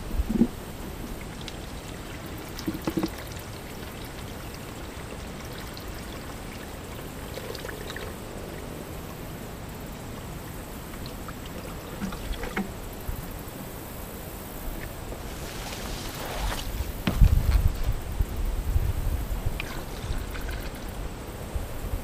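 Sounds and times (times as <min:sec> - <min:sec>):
syrup pouring in a stream: 0:00.4 - 0:09.1, 0:10.4 - 0:13.1, 0:19.5 - 0:21.0
soft knocks: 0:17.0 - 0:17.7.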